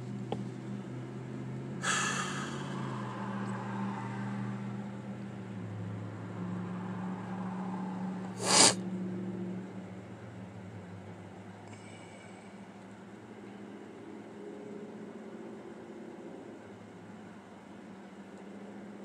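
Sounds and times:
car low hum: 0.0s - 15.1s
man sniffing: 1.8s - 2.8s, 8.4s - 8.8s
man exhaling: 1.8s - 2.9s, 8.4s - 8.8s.

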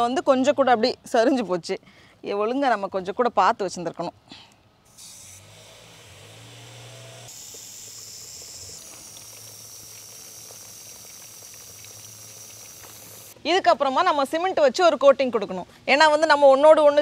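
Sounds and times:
hose spray hiss: 7.3s - 13.4s
water trickling and splashing: 7.3s - 13.4s.

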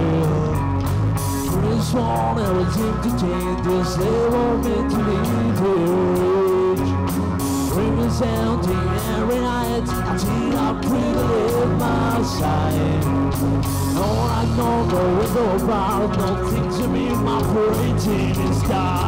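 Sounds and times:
drum kit beat: 0.0s - 19.0s
electric guitars: 0.0s - 19.0s
young man singing: 0.0s - 19.0s.

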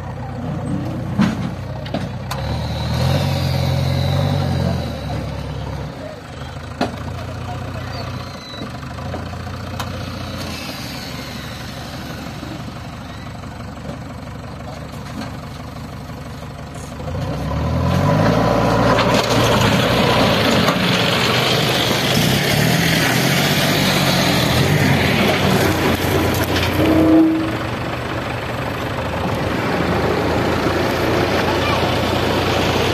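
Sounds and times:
diesel engine revving: 0.0s - 32.9s
short tone: 26.8s - 27.7s.

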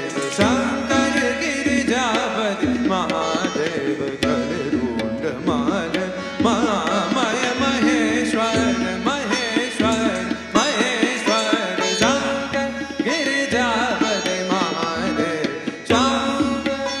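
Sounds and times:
drum strokes: 0.0s - 17.0s.

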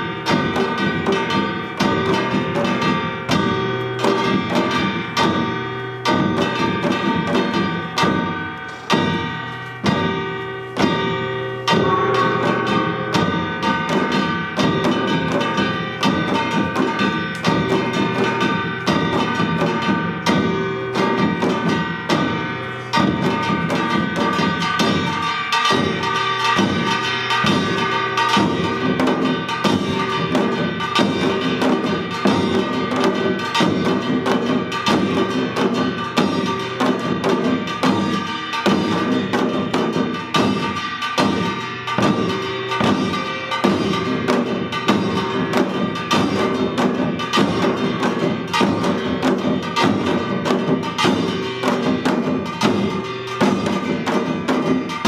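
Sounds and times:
drums playing fast rhythm: 0.0s - 55.0s
metallic gong ringing: 0.0s - 55.0s.

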